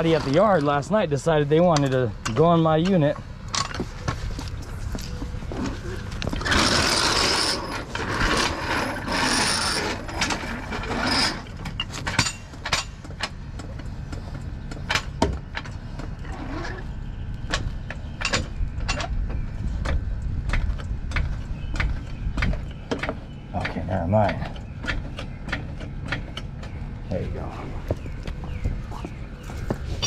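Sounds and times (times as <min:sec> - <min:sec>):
floor jack scraping on concrete: 0:05.5 - 0:13.0.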